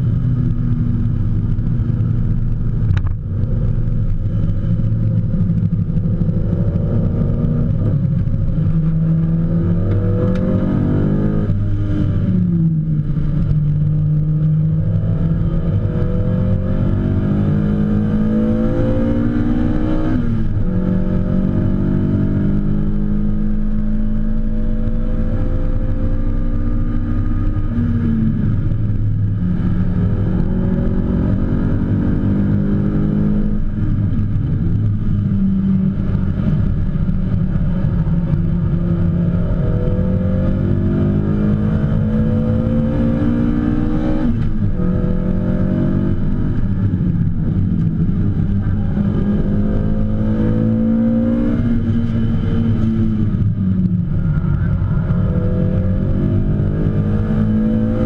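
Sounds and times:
race car engine accelerating: 35.9 - 58.0.

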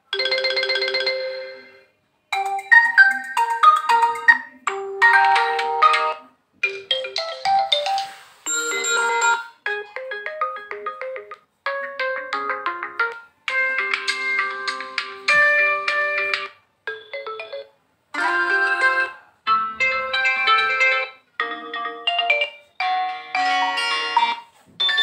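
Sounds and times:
phone ringtone chimes: 0.2 - 3.4, 5.0 - 16.3, 16.9 - 17.7.

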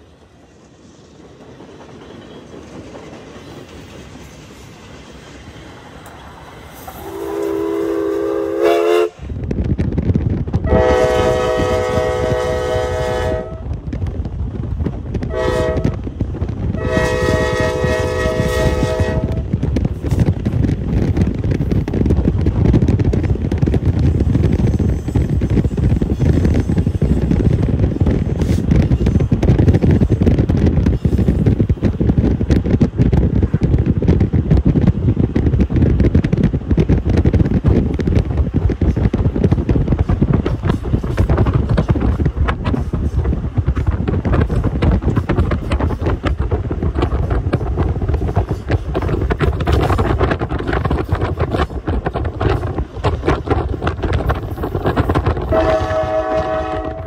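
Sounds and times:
passenger train rolling past: 0.0 - 57.0.

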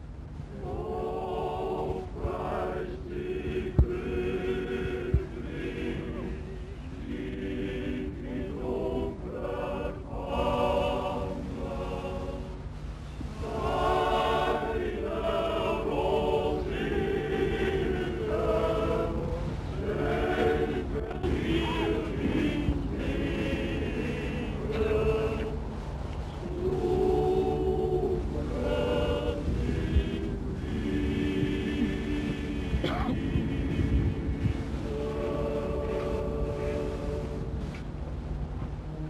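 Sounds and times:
low hum: 0.0 - 39.0
choir singing held notes: 0.5 - 37.8.

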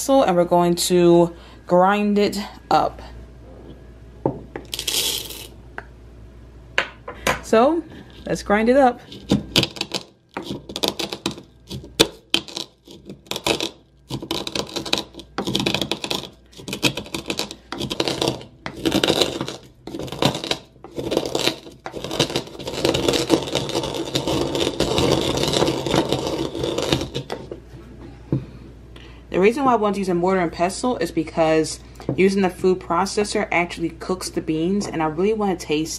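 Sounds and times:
pestle pounding coffee beans: 9.0 - 27.6
pestle grinding rub: 9.0 - 27.7.

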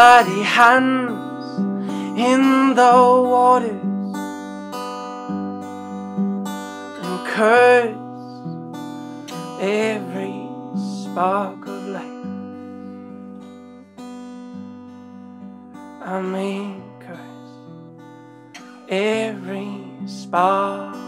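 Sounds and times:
man singing with vibrato: 0.0 - 4.3, 7.0 - 8.4, 9.3 - 12.3, 16.0 - 17.5, 18.7 - 21.0
acoustic guitar playing: 0.0 - 21.0.

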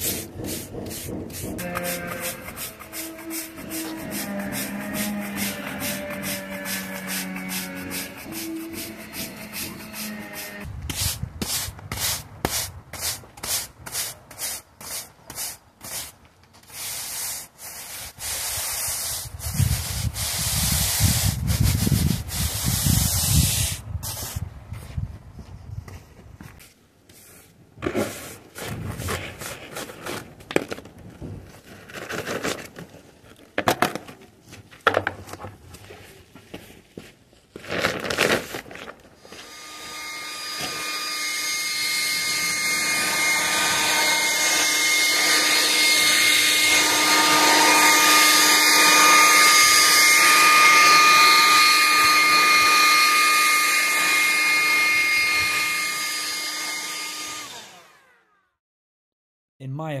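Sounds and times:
brush scraping sand on paving: 0.0 - 25.8, 26.5 - 30.3
leaf blower whining rush: 1.1 - 10.7, 39.2 - 58.5.

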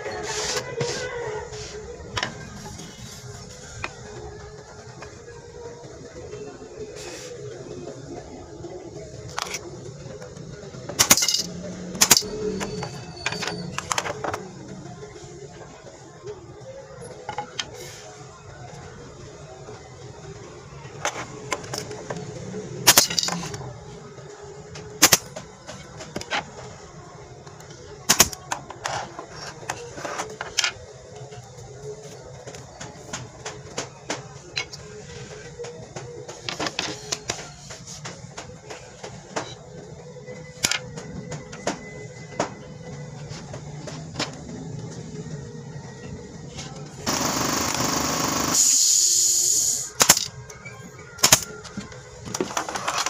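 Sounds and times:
nail gun firing: 11.0 - 11.4, 25.0 - 25.3, 28.1 - 28.4, 47.1 - 50.3, 51.2 - 51.5.

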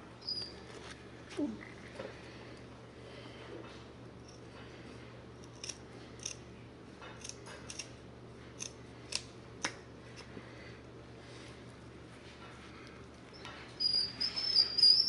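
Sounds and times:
scissors snipping carpet: 7.1 - 7.9.

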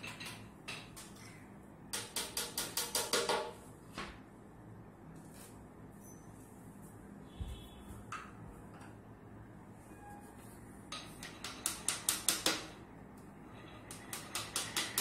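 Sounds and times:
hammer tapping on wood: 11.0 - 12.7.

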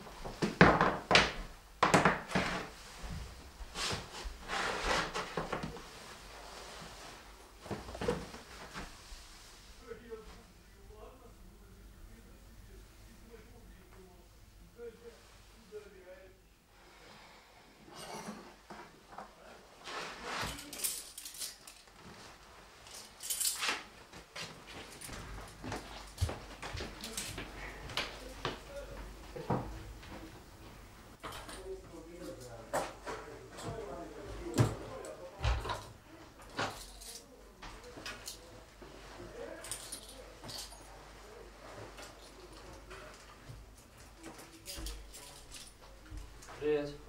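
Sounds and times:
scraping and rustling: 2.3 - 10.2, 19.7 - 28.4.

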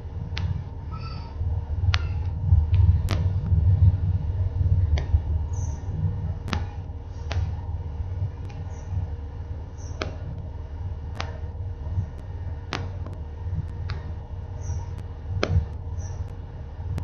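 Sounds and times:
faint steady hum: 0.0 - 17.0
low rumbling noise: 0.0 - 17.0
sharp crackling clicks: 4.7 - 17.0.

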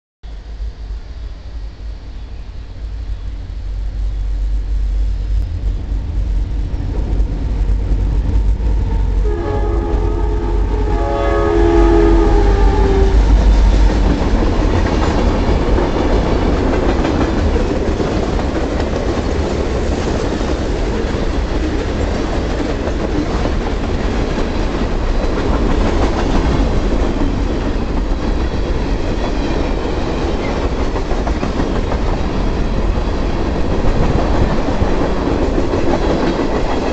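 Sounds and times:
diesel locomotive rumble: 0.3 - 36.9
train horn blast: 8.5 - 14.0
train wheels clattering on rail: 12.5 - 36.9.

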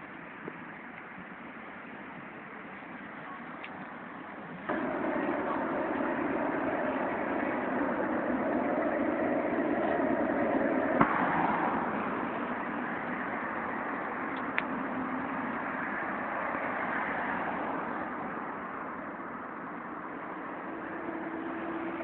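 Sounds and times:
passing cars: 4.0 - 22.0.

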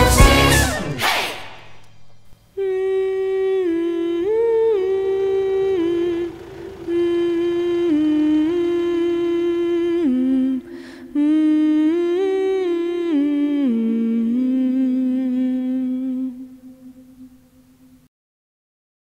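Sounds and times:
person humming a slow melody: 2.5 - 18.1
breath intake: 10.6 - 11.1.

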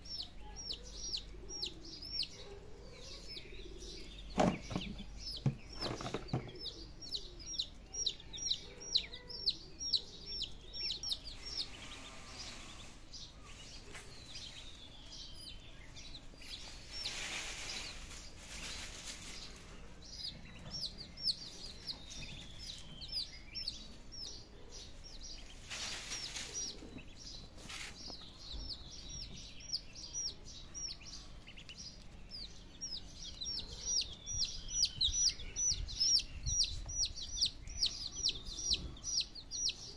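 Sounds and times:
chicks peeping: 0.0 - 39.9
rustling: 16.4 - 19.9, 25.4 - 28.4.

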